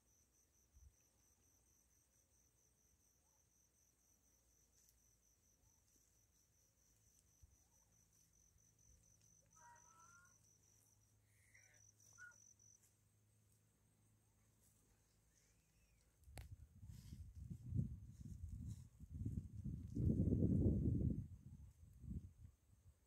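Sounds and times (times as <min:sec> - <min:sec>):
crickets chirring: 0:00.0 - 0:16.2.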